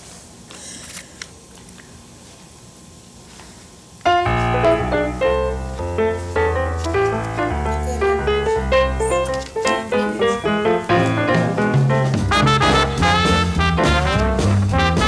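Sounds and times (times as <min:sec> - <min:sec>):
keyboard music with bass line: 0:04.1 - 0:15.0.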